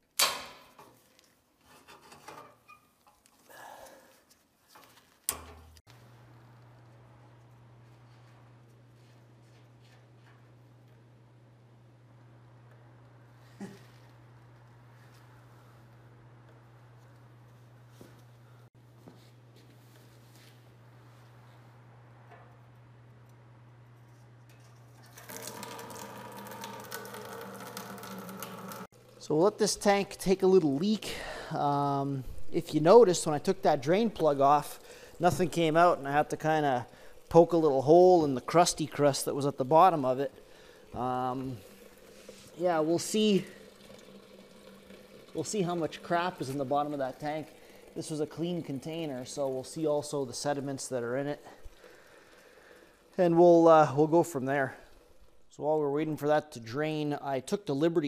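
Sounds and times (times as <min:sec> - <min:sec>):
faint metallic scraping and creaking: 0:01.2 - 0:03.5
liquid splashing into plastic bucket: 0:25.0 - 0:28.9.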